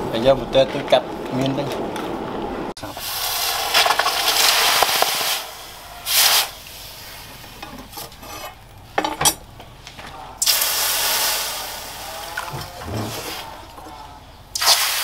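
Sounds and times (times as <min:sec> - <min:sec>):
hot steel hissing in water: 0:02.9 - 0:07.6, 0:10.4 - 0:13.6, 0:14.5 - 0:15.0.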